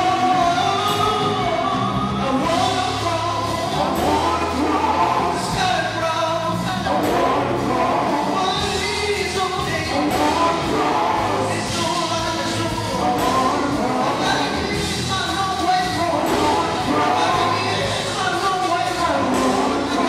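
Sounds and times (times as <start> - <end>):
drums: 0.0 - 20.0
electric guitar: 0.0 - 20.0
keyboard: 0.0 - 20.0
male vocal group singing: 0.0 - 20.0.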